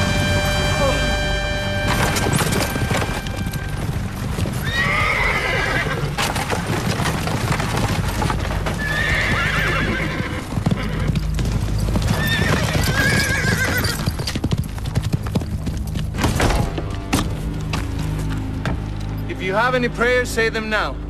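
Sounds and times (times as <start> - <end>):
horses galloping: 1.8 - 19.3
horse whinnying: 2.0 - 6.6, 8.6 - 11.4, 12.0 - 14.4.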